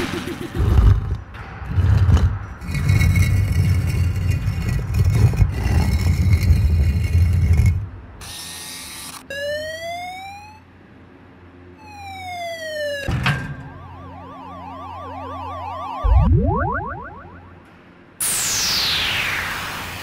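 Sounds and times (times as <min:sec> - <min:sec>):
warbling electronic tones: 0:11.8 - 0:17.6, 0:18.2 - 0:20.0
sharp electronic hit: 0:13.0 - 0:20.0
synth sweeps: 0:13.7 - 0:20.0
heavy low rumble: 0:16.0 - 0:17.7
burst of noise: 0:18.2 - 0:20.0.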